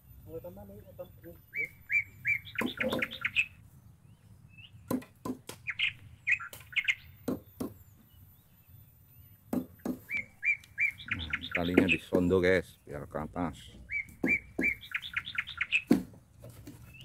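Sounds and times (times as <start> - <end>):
bird chirping: 0.0 - 17.0
sharp knocks: 4.9 - 5.6, 7.2 - 7.8, 9.5 - 10.1, 13.7 - 14.8, 15.8 - 16.8.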